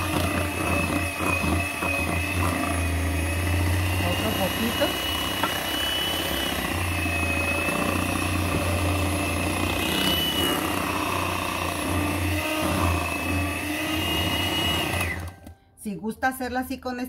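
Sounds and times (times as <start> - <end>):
electric hand mixer whining: 0.0 - 15.5.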